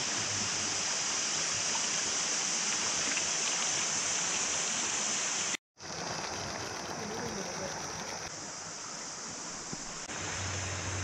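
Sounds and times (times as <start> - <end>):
running water rushing: 0.0 - 11.0
high-pitched hiss: 8.3 - 11.0.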